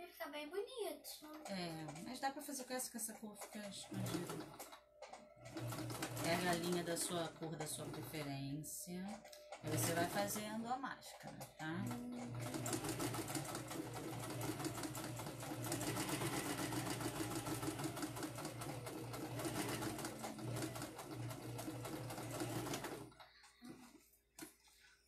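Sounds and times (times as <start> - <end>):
sewing machine stitching: 3.1 - 8.4, 9.1 - 23.8.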